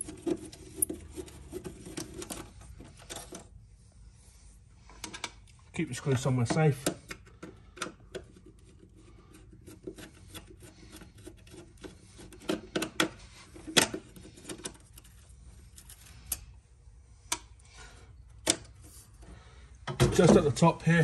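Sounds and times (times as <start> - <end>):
screwdriver scraping and clicking on metal: 0.0 - 3.4, 6.2 - 16.5.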